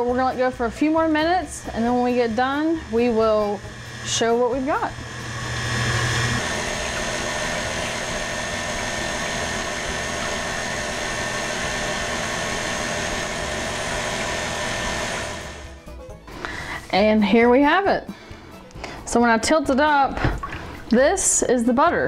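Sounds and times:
stand mixer motor running: 0:00.4 - 0:15.9
wire whip churning cream: 0:01.4 - 0:15.7.

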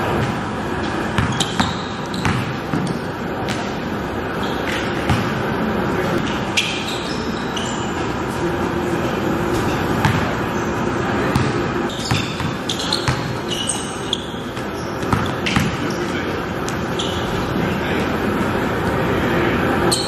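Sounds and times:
sneakers squeaking on floor: 0:00.0 - 0:05.5, 0:06.2 - 0:08.5, 0:09.5 - 0:17.6
basketball bouncing on hard floor: 0:01.2 - 0:03.7, 0:04.7 - 0:05.3, 0:10.0 - 0:10.3, 0:11.3 - 0:13.4, 0:14.6 - 0:15.8.

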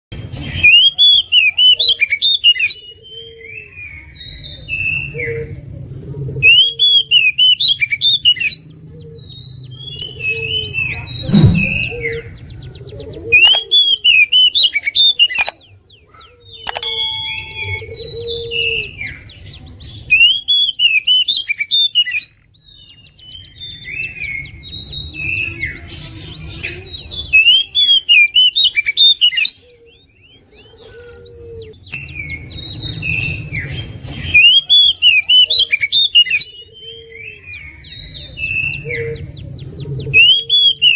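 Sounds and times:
thump: 0:11.2 - 0:12.0
bird singing whistled phrases: 0:26.6 - 0:30.3, 0:40.2 - 0:40.9.

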